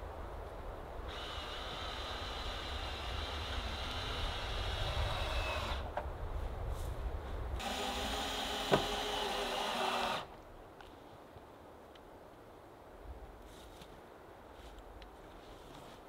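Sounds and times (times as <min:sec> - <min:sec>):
power drill drilling wood: 0:01.1 - 0:05.9, 0:07.6 - 0:10.3.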